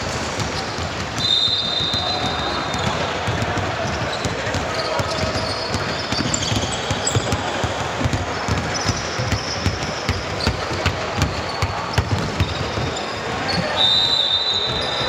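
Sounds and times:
basketball bouncing: 0.1s - 13.0s
shoe squeaks: 3.8s - 15.0s.

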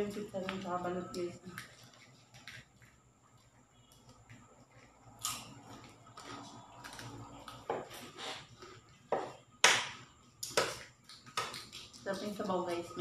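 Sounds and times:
eating noises: 1.4s - 9.5s, 10.2s - 13.0s
eggshells cracking: 9.6s - 12.3s.

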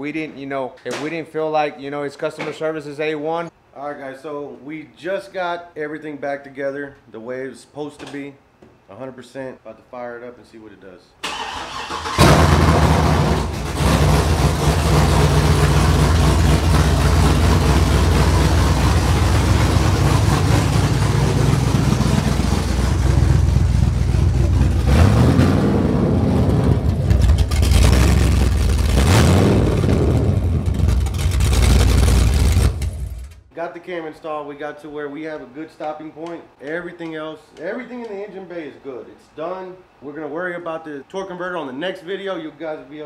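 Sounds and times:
engine starting and idling: 11.2s - 33.4s.

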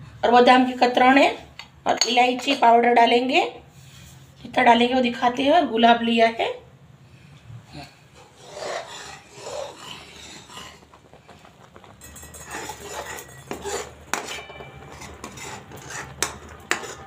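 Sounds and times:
spatula scraping metal pan: 8.1s - 17.0s.

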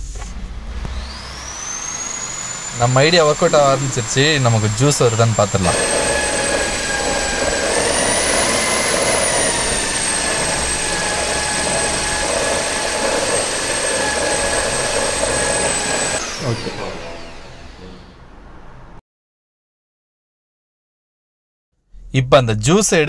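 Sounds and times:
electric drill motor whine: 0.5s - 18.2s
whisk churning watermelon flesh: 2.8s - 16.3s.

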